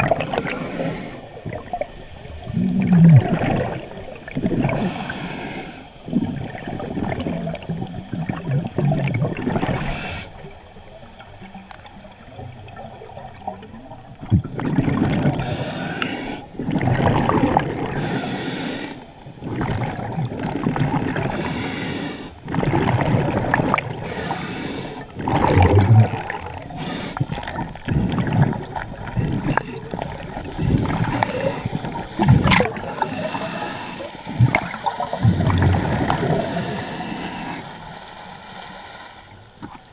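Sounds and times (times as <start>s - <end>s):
bubbles gurgling underwater: 0.0s - 5.0s, 6.1s - 15.7s, 16.5s - 18.1s, 19.3s - 21.5s, 22.4s - 24.2s, 25.1s - 37.5s
hissing breaths through regulator: 0.1s - 1.4s, 4.7s - 6.0s, 9.7s - 10.4s, 15.4s - 16.5s, 17.9s - 19.2s, 21.3s - 22.4s, 24.0s - 25.2s, 26.6s - 27.9s, 30.7s - 39.3s.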